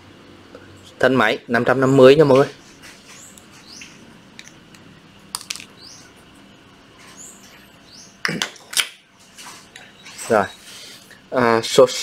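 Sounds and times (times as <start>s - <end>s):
small birds chirping: 1.8s - 4.6s, 5.5s - 8.4s, 9.6s - 11.2s.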